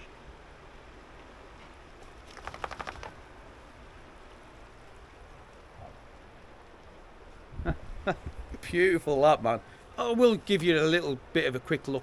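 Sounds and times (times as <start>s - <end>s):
rapid rattle of clicks: 2.3s - 3.1s.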